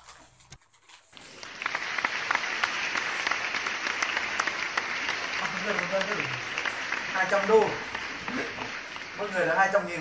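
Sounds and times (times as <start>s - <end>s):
crowd applause: 1.2s - 10.0s.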